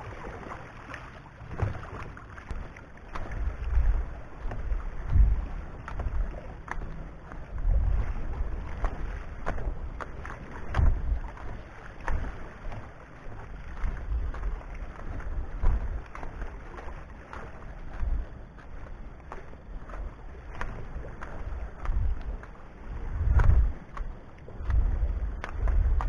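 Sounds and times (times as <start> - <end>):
wind buffeting microphone: 1.5 - 12.4, 13.7 - 16.9, 20.5 - 26.0.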